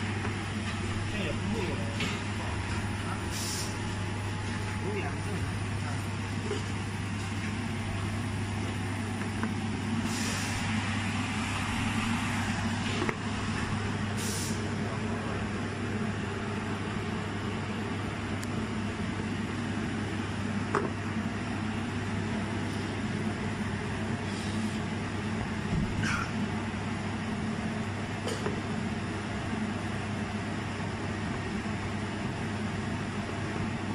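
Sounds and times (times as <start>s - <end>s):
brief hisses: 3.3s - 3.8s, 10.1s - 10.7s, 14.2s - 14.6s.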